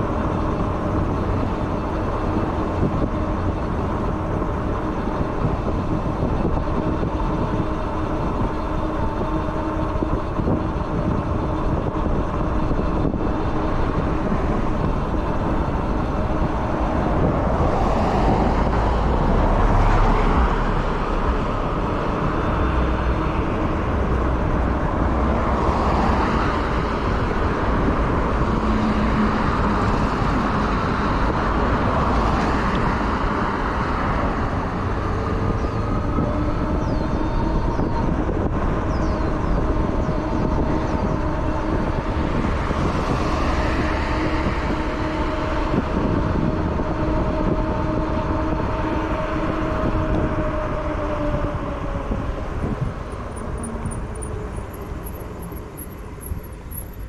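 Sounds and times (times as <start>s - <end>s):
road traffic rumble: 0.0s - 57.0s
vehicle passing: 12.5s - 57.0s.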